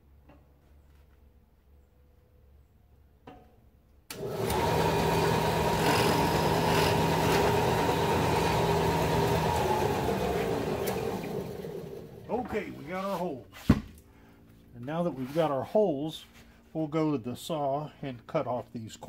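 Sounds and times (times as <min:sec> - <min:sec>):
drill press motor hum: 0:04.1 - 0:12.6
drilling through plywood: 0:04.1 - 0:12.6.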